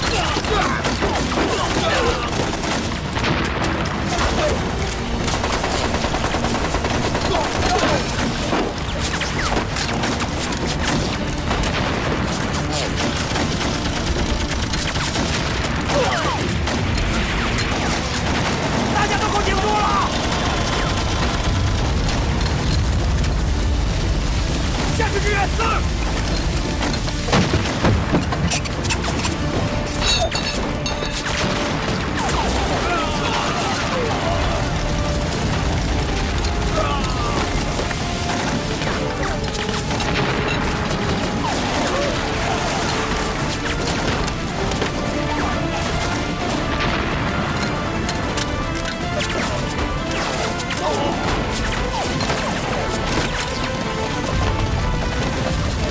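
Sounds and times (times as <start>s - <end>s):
dramatic music score: 0.0s - 55.9s
rifle and machine gun fire: 0.8s - 10.5s, 11.3s - 22.4s.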